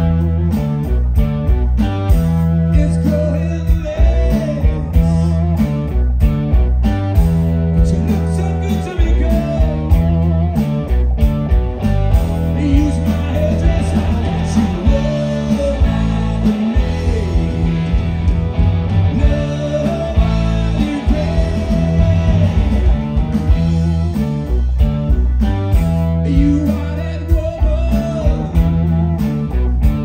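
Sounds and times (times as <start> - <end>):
bass: 0.0 - 30.0
distorted electric guitar: 0.0 - 30.0
drums keeping a steady beat: 0.0 - 30.0
man singing: 2.6 - 5.6, 7.6 - 10.2, 12.5 - 18.1, 19.0 - 24.2, 26.2 - 29.2.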